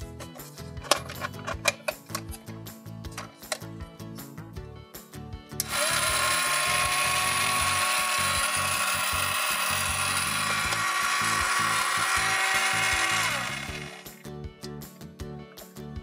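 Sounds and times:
small toy motor whining: 5.6s - 14.2s.

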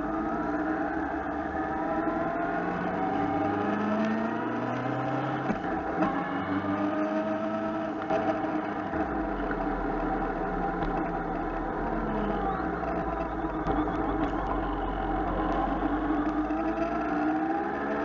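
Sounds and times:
motorcycle engine accelerating: 0.0s - 18.0s
wind and road noise: 0.0s - 18.0s.

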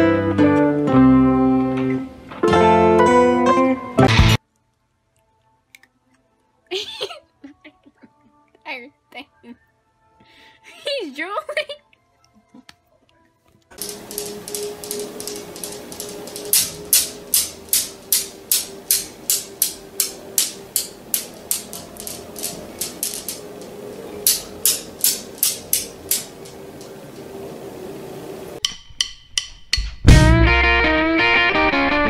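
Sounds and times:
steel balls clacking: 13.8s - 29.8s.

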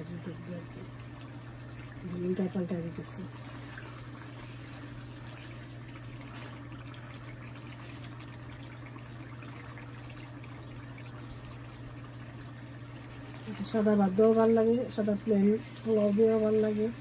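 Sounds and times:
steady low hum: 0.0s - 17.0s
sauce simmering in a pan: 0.2s - 17.0s
wooden spatula stirring: 3.4s - 5.7s.

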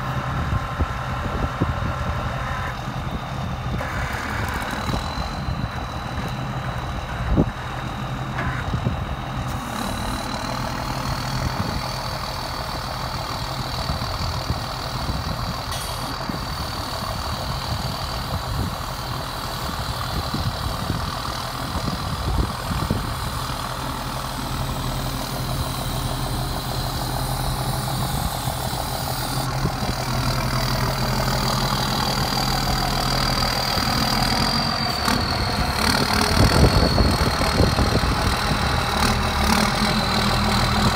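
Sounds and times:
hydraulic crane whine: 0.0s - 40.9s
truck engine idling: 0.0s - 40.9s.

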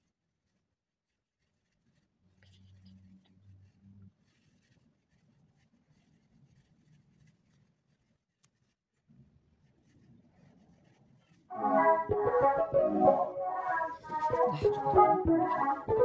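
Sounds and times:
loud music: 11.5s - 16.0s.

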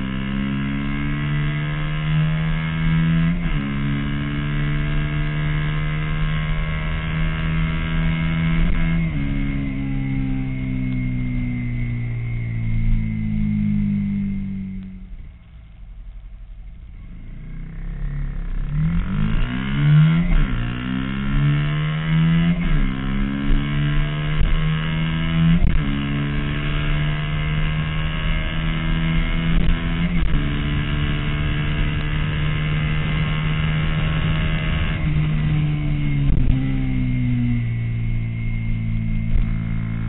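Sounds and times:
motorcycle engine accelerating: 0.0s - 15.8s, 16.7s - 40.0s.

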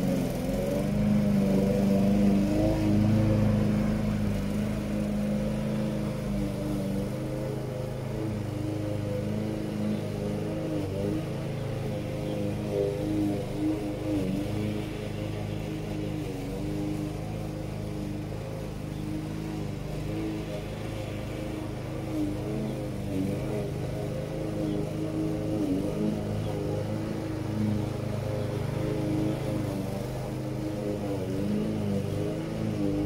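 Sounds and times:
push lawn mower running: 0.0s - 33.0s
string trimmer cutting grass: 0.0s - 33.0s.

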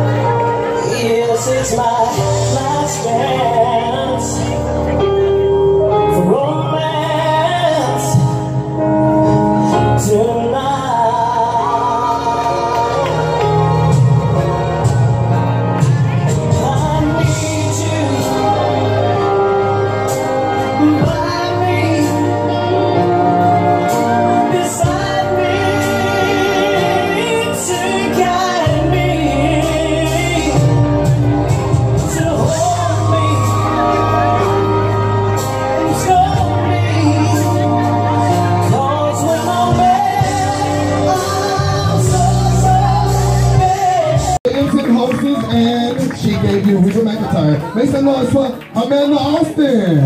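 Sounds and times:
steady bass line: 0.0s - 48.4s
woman singing with vibrato: 16.5s - 30.7s.

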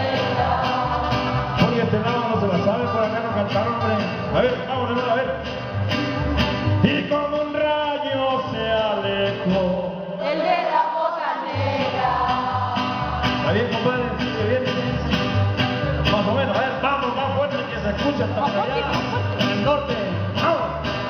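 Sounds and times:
person singing: 0.0s - 5.0s
mariachi band playing: 0.0s - 21.0s.

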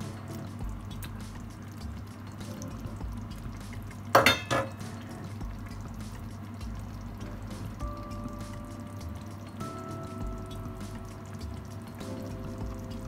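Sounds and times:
low steady hum: 0.0s - 13.0s
crockery clinking: 4.2s - 4.8s.

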